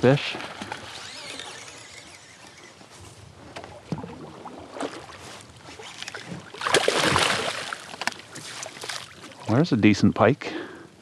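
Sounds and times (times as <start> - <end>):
fish thrashing and splashing: 0.4 - 2.7, 4.0 - 9.5.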